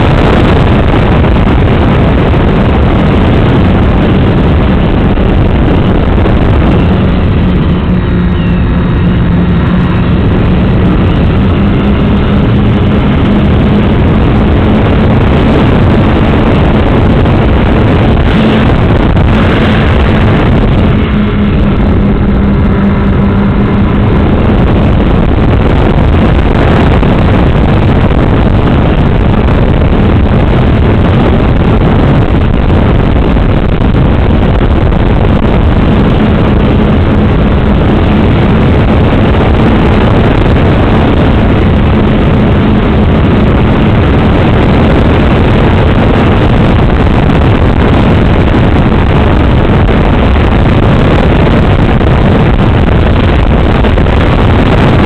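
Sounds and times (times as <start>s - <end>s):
wind rush: 0.0s - 55.0s.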